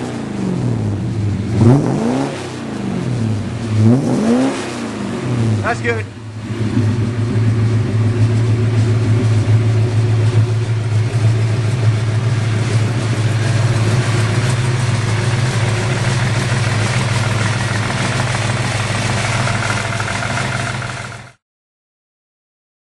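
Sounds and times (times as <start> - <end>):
car engine idling: 5.2 - 21.4.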